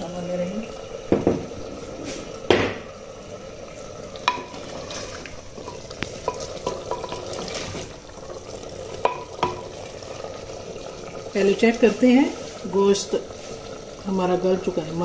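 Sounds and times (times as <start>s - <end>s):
simmering gravy sizzling: 0.0s - 15.0s
wooden spoon knocking clay pot: 5.6s - 7.3s, 9.0s - 9.8s.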